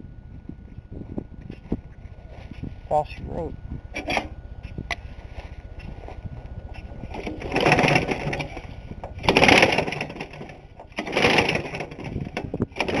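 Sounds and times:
lawnmower engine running: 3.9 - 13.0
loud crackling bursts: 6.7 - 13.0.

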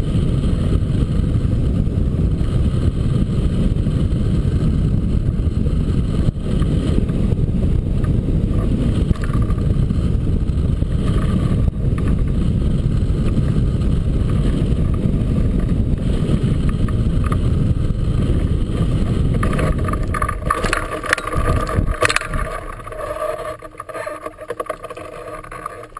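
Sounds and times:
wind buffeting microphone: 0.0 - 25.9
knocks and rattles on touchdown: 8.6 - 9.7, 19.3 - 25.9.

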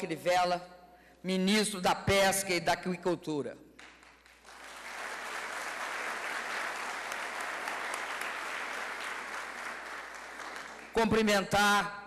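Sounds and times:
audience applauding: 3.8 - 11.1.

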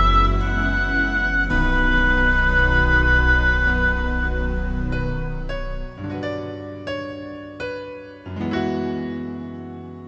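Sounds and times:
low held tone: 0.0 - 6.0
piano notes ringing: 0.0 - 10.0.

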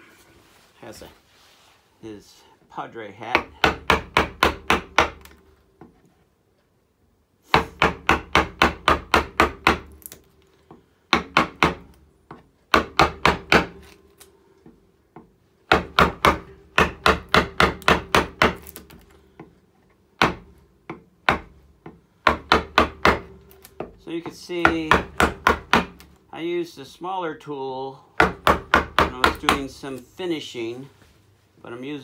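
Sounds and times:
mallet tapping gouge into wood: 14.6 - 19.5, 20.2 - 26.1, 28.2 - 29.7.

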